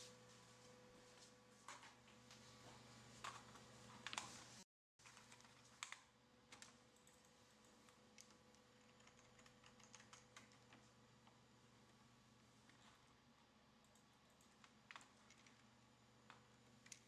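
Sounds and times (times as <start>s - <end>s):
low steady hum: 0.0s - 17.0s
faint keyboard typing: 1.6s - 11.4s, 13.8s - 17.0s.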